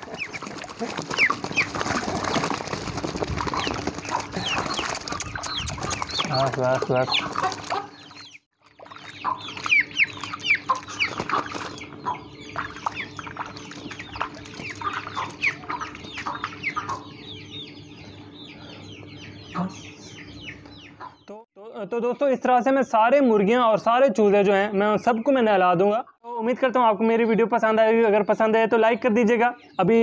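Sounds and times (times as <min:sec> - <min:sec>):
chicks peeping: 0:00.0 - 0:21.4.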